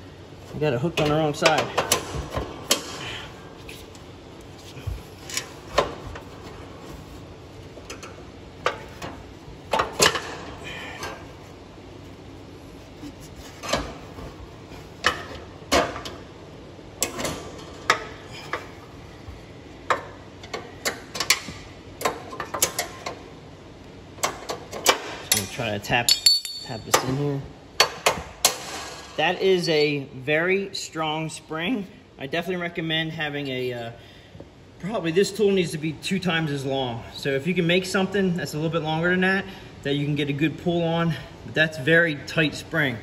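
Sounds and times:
metal hook clinking on steel: 0:25.3 - 0:27.0.

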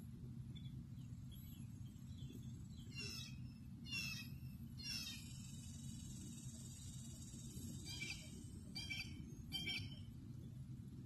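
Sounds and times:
steady low rumble: 0:00.0 - 0:11.0
bird harsh calls: 0:02.9 - 0:05.4, 0:07.8 - 0:10.1.

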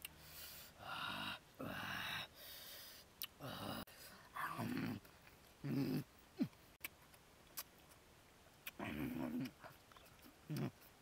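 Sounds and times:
person humming mm sounds: 0:03.2 - 0:06.7, 0:08.6 - 0:11.0
person chewing noisily: 0:08.6 - 0:11.0.

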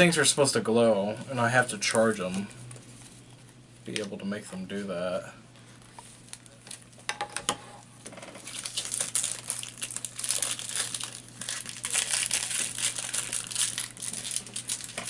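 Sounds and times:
plastic wrapping crinkling: 0:08.3 - 0:15.0.

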